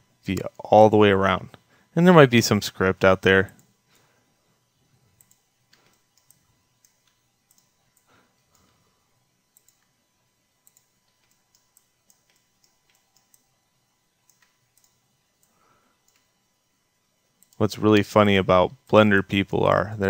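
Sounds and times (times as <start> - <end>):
computer mouse clicks: 5.2 - 8.8, 9.5 - 9.9, 10.6 - 13.5, 14.2 - 16.3, 17.4 - 17.6.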